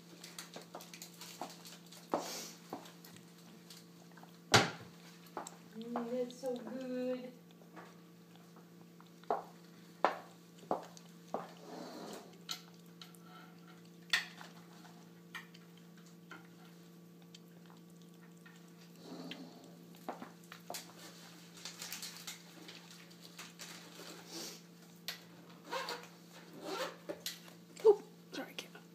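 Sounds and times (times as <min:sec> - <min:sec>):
faint steady hum: 0:00.0 - 0:28.9
cat licking: 0:01.2 - 0:21.3.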